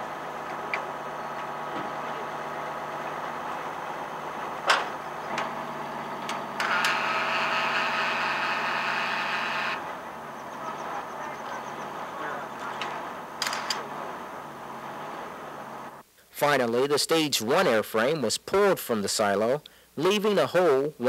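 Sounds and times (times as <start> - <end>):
crane engine running: 0.0 - 16.0.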